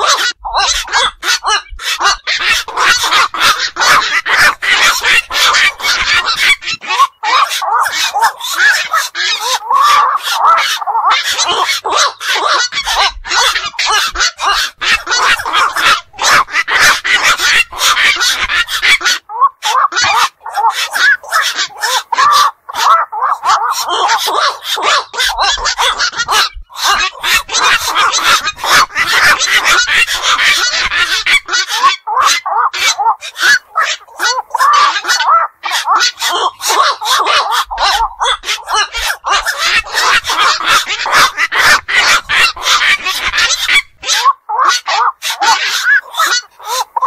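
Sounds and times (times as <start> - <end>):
herons croaking: 0.0 - 47.0.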